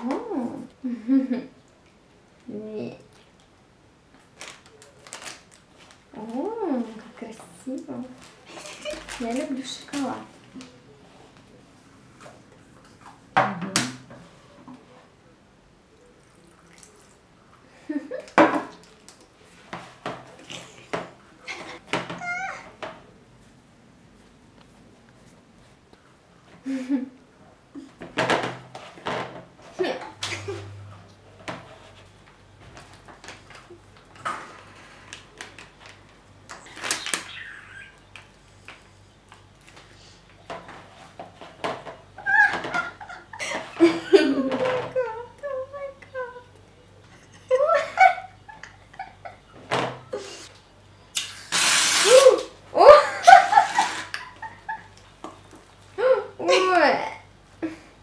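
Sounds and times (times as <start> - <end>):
faint low hum: 0.0 - 28.1
packet wrapper crinkling: 4.2 - 6.1, 8.2 - 10.1, 35.4 - 38.3.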